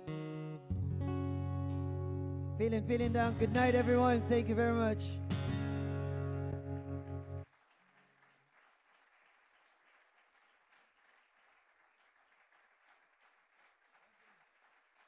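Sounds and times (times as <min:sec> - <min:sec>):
faint audience applause: 0:06.8 - 0:15.0.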